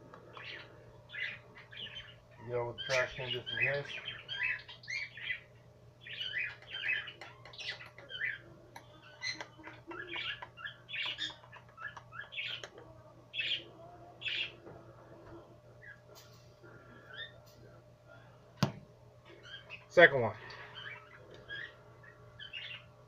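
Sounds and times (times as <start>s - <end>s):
bird chirping and squawking: 0.3s - 12.7s, 13.3s - 14.6s, 16.9s - 17.4s, 19.3s - 23.0s.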